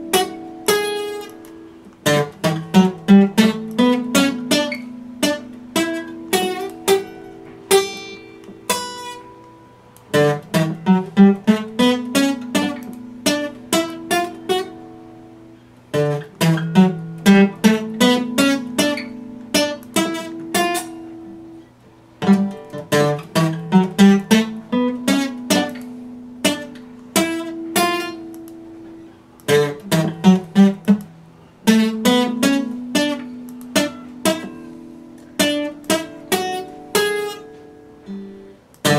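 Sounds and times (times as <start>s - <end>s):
acoustic guitar picking: 0.0s - 38.9s.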